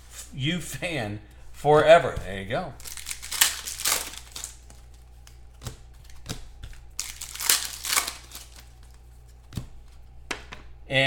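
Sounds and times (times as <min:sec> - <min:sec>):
low electrical hum: 0:00.0 - 0:11.0
cards rustling: 0:01.2 - 0:10.7
foil wrapper crinkling: 0:02.8 - 0:10.0.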